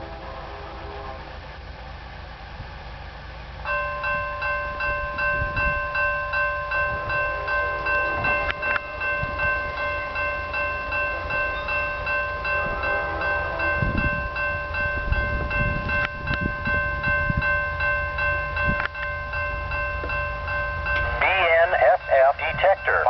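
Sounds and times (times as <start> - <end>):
railroad crossing bell ringing: 0.0 - 23.0
wind rumble on microphone: 4.1 - 6.1, 6.7 - 9.8, 12.5 - 19.2.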